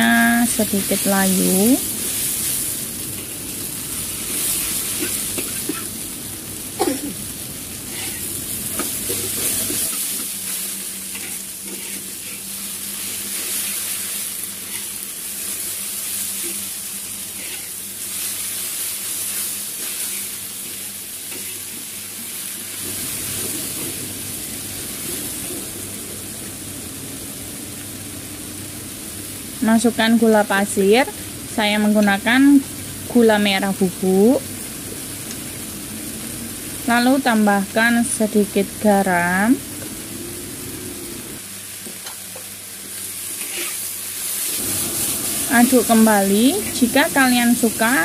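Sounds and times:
vegetables sizzling in a wok: 0.0 - 48.0
metal spatula scraping a pan: 7.9 - 8.3, 11.1 - 12.4, 17.3 - 17.8, 43.4 - 43.8.

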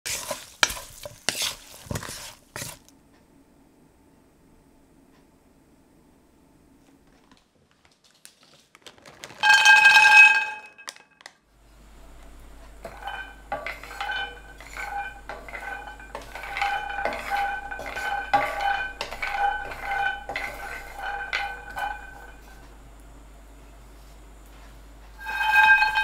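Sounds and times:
wooden spatula stirring: 0.0 - 2.9, 12.6 - 22.7, 25.1 - 26.0
nuts rolling and knocking in pan: 0.1 - 2.9, 9.1 - 11.2, 12.7 - 22.6, 25.2 - 26.0
frying pan ringing clatter: 12.8 - 22.6, 25.2 - 26.0.

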